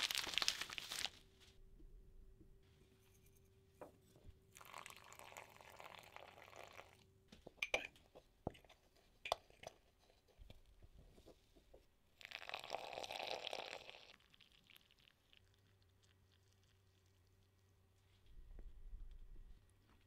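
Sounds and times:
water pouring from kettle: 4.6s - 7.0s, 12.2s - 15.2s.

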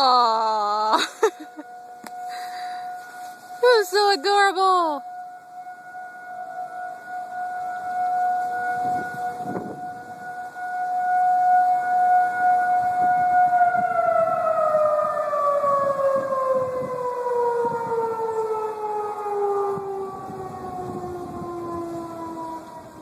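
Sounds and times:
warning siren winding down: 0.0s - 23.0s.

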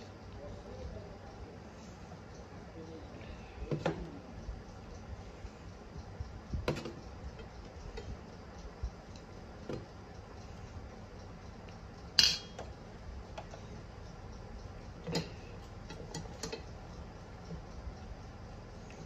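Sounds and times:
spoon clinking against metal bowl: 12.2s - 12.6s.

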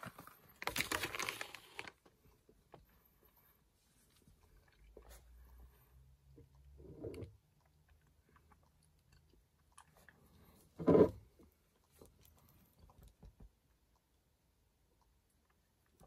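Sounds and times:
person chewing chocolate: 4.3s - 14.1s.

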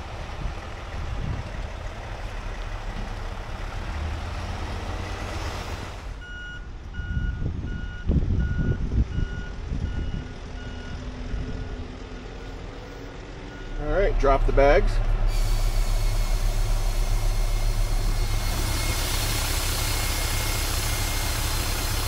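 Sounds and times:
diesel engine running: 0.0s - 22.0s
backup alarm beeping: 6.2s - 11.0s, 11.6s - 22.0s
heavy low thumps: 13.4s - 20.6s.

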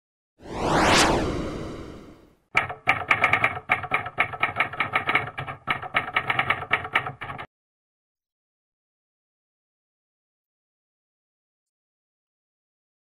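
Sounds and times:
whoosh: 0.4s - 2.4s
typewriter keystrokes clattering: 2.6s - 7.5s.

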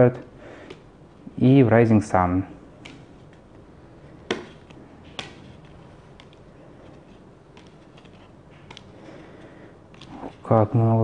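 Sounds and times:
cards being leafed through: 4.3s - 10.6s.

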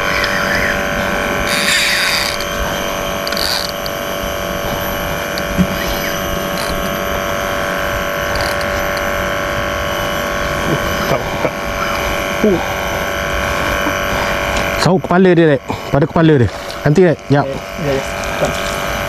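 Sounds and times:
boat motor whining hum: 0.0s - 19.0s.

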